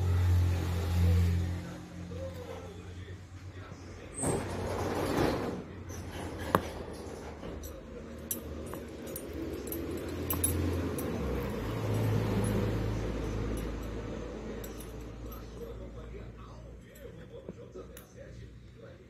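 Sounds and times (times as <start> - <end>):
metal ring clicks: 7.6 - 15.8.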